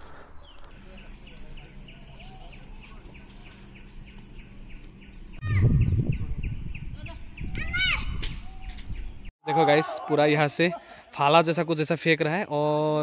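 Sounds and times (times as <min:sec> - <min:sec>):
birds chirping: 0:00.0 - 0:12.8
wind rumble on microphone: 0:05.4 - 0:09.3.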